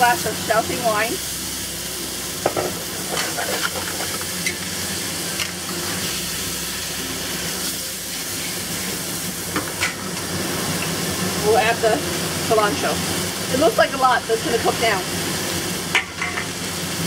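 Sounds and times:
food sizzling in a wok: 0.0s - 17.0s
metal utensil scraping a pan: 2.5s - 4.6s.

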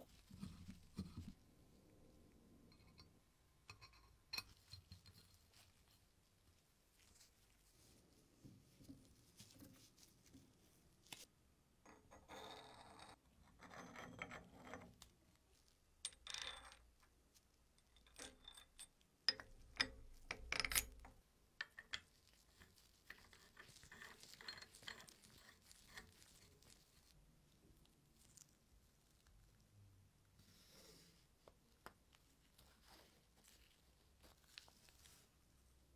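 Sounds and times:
small metal parts clicking and scraping: 17.8s - 27.2s.

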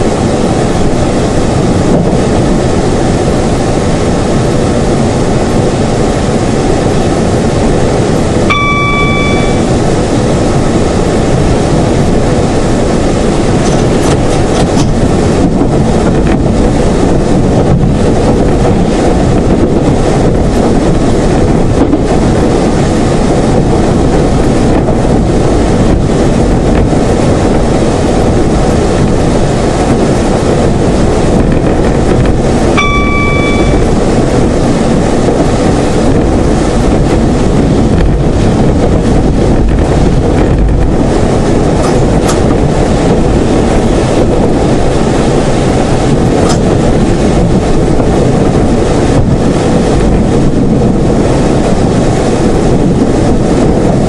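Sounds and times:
train diesel engine rumble: 0.0s - 48.6s
high pitched tone: 8.5s - 10.1s, 32.8s - 34.2s.

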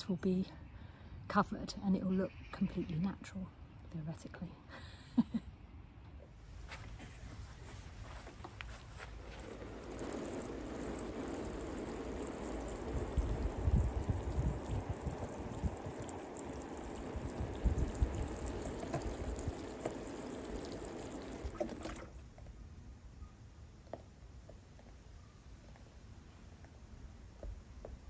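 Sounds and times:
hose water splashing on liner: 6.7s - 22.4s
wind buffeting microphone: 9.1s - 22.0s.

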